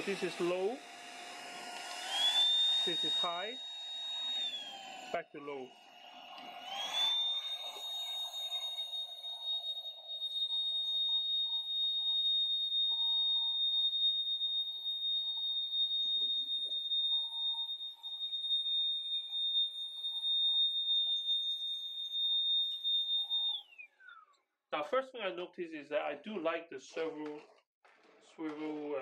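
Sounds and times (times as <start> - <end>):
vacuum cleaner motor whine: 0.0 - 24.1.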